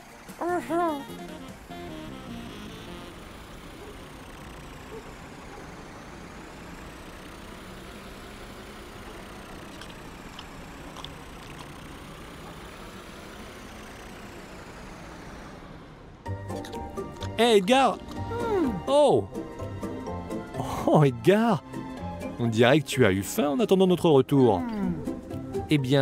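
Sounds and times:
cartoon truck engines rumbling: 0.0 - 26.0.

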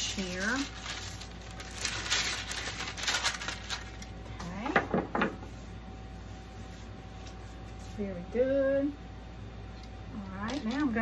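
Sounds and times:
parchment paper rustling: 0.0 - 8.2, 10.2 - 11.0.

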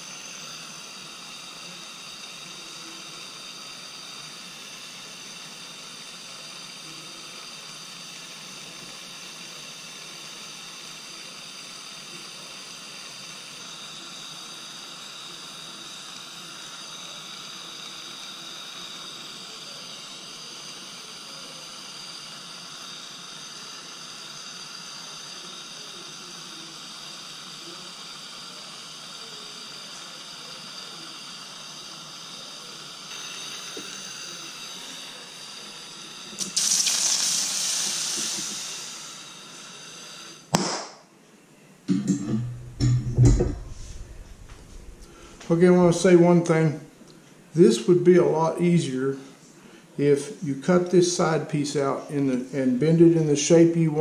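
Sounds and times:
soldering torch hissing: 0.0 - 41.0, 43.5 - 46.9, 47.5 - 54.0
flame going out with a pop: 36.3 - 38.7, 40.5 - 41.1.

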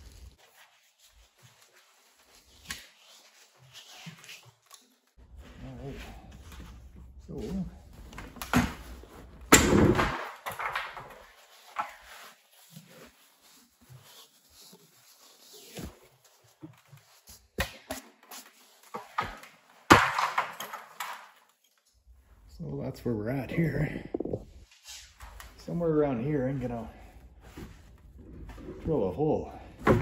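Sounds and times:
cloth and foam rustling: 0.0 - 8.2, 11.2 - 17.6.

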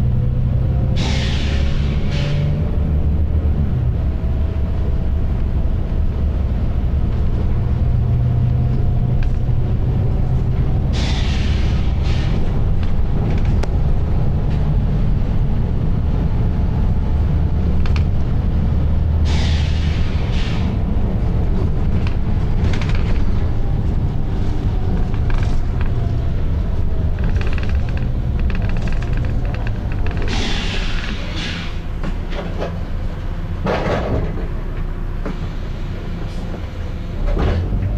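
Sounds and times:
bus diesel engine drone: 0.0 - 37.9
compressed air hiss: 10.9 - 12.4, 19.2 - 20.8, 30.3 - 31.9.

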